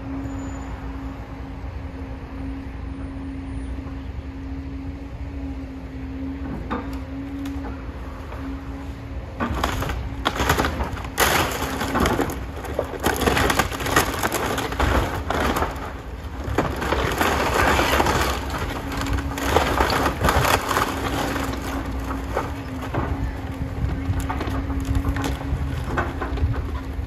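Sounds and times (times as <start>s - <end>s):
excavator engine humming: 0.0s - 27.0s
timber cracking and crashing: 9.4s - 27.0s.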